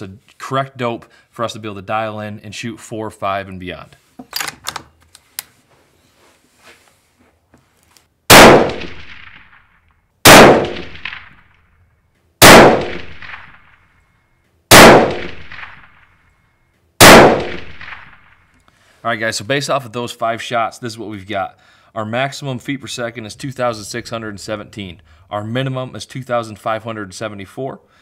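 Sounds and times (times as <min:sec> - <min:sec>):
rifle shots echoing: 0:08.3 - 0:11.5, 0:12.4 - 0:13.9, 0:14.7 - 0:16.2, 0:17.0 - 0:18.5.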